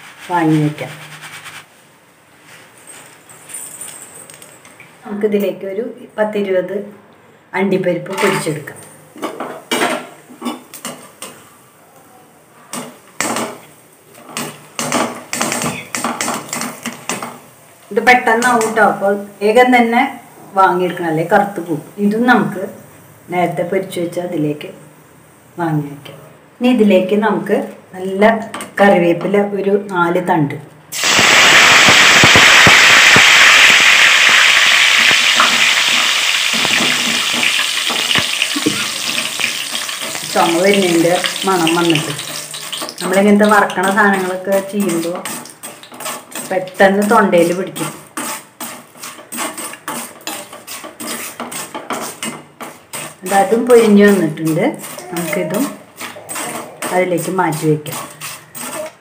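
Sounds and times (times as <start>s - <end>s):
frying in hot oil: 9.1s - 11.6s, 12.7s - 23.7s, 30.9s - 59.0s.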